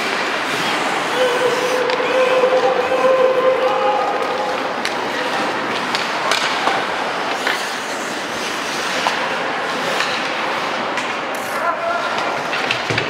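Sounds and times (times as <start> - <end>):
skates scraping on ice: 0.0 - 11.1
hockey sticks and puck clacking: 0.0 - 13.0.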